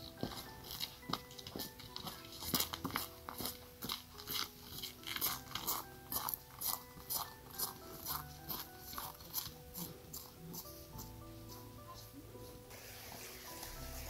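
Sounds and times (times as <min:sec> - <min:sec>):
footsteps crunching on gravel: 0:00.0 - 0:10.8
soft background music: 0:00.0 - 0:14.0.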